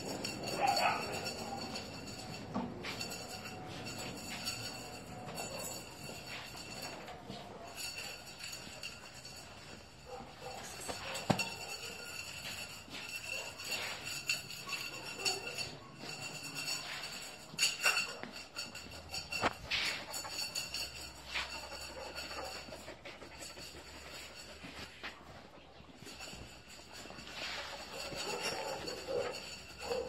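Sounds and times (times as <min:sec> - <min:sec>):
metallic jingling: 0:00.0 - 0:30.0.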